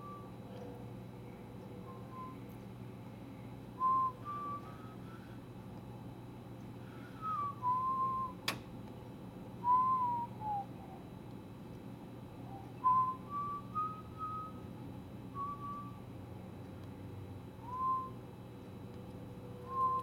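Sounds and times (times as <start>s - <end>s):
person whistling a tune: 0.0s - 0.3s, 1.8s - 2.5s, 3.8s - 4.9s, 7.2s - 8.4s, 9.6s - 11.0s, 12.5s - 14.6s, 15.4s - 16.0s, 17.6s - 18.2s, 19.6s - 20.0s
low hum: 0.0s - 20.0s
sharp click: 8.4s - 9.0s.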